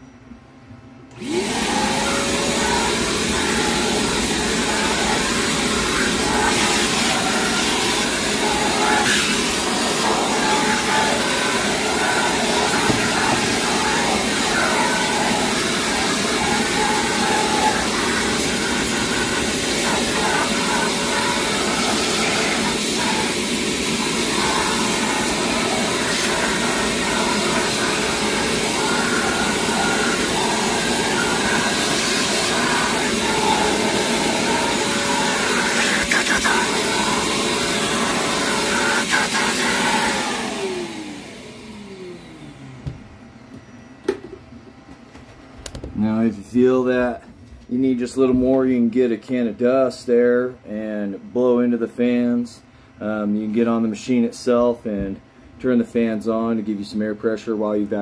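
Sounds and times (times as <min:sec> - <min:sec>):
shop vac running: 0:01.0 - 0:58.0
vacuum suction noise: 0:01.1 - 0:42.9.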